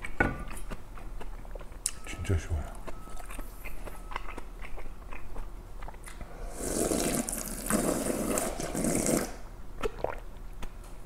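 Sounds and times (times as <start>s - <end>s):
person slurping broth: 6.3s - 10.2s.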